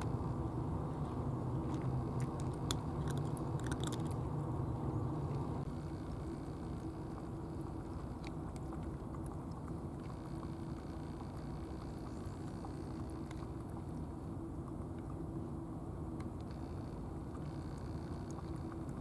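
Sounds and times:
cat lapping milk: 0.0s - 4.3s, 5.6s - 15.4s, 16.5s - 19.0s
steady low rumble: 0.0s - 19.0s.

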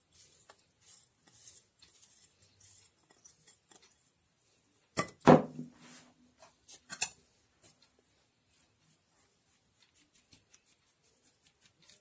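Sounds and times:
hand patting and rustling food: 7.5s - 12.0s.

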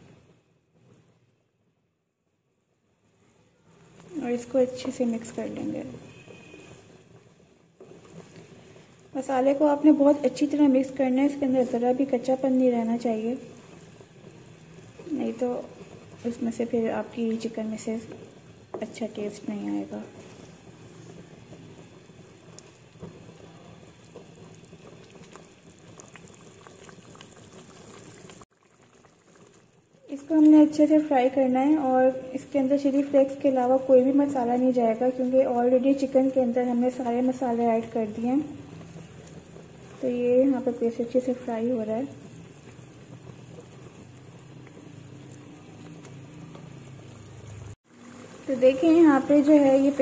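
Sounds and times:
paste sizzling in oil: 3.7s - 50.0s
paste spluttering in hot oil: 10.4s - 30.3s.

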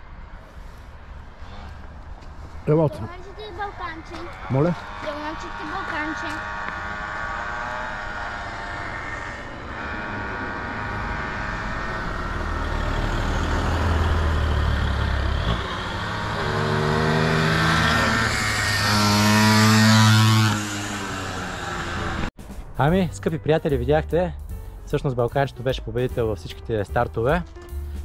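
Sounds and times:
small motorbike engines racing: 1.3s - 22.3s.

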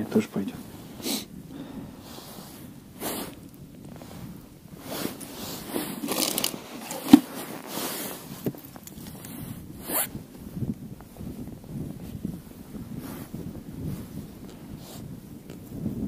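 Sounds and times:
rustling and scraping handling: 2.4s - 10.1s.

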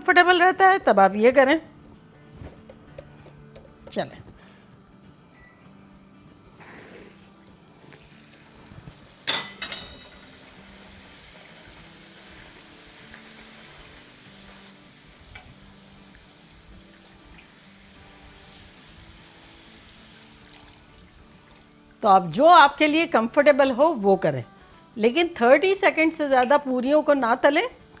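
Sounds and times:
faint background music: 0.0s - 28.0s
dough sizzling in hot oil: 7.4s - 22.0s.

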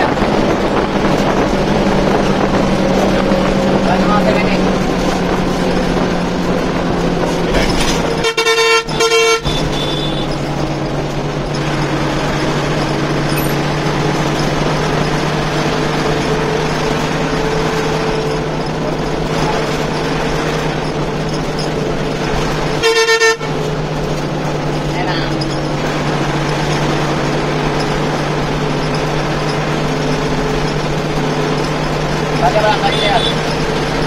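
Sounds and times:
bus engine drone: 0.0s - 34.0s
bus horn: 7.6s - 11.2s, 21.7s - 23.9s, 32.4s - 34.0s.

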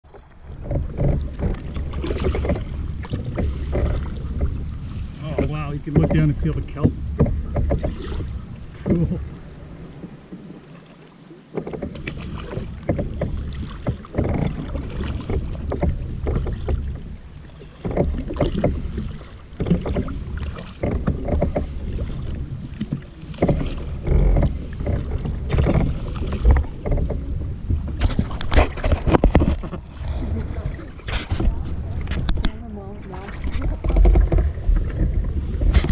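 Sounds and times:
paddle splashes: 0.0s - 35.9s
water lapping against hull: 0.0s - 35.9s
wind rumbling on microphone: 0.0s - 35.9s.

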